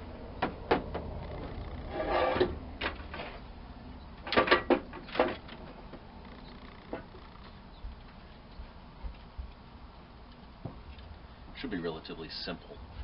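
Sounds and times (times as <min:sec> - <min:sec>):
metal scrape: 0:01.5 - 0:03.4
metal knocks and clanks: 0:04.3 - 0:05.6.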